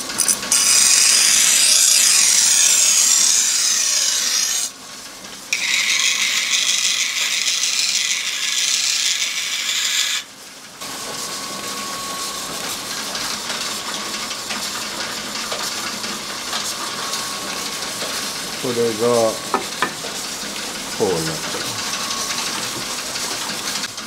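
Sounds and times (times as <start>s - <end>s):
knife grinding on stone wheel: 0.1s - 4.7s, 5.5s - 10.3s.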